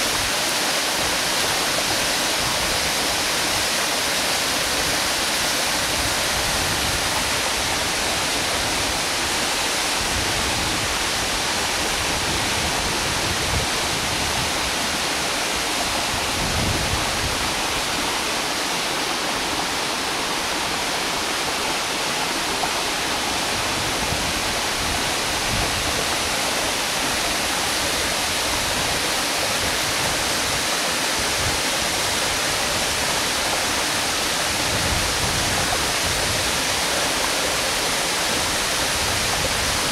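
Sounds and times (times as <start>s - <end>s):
waterfall rushing: 0.0s - 39.9s.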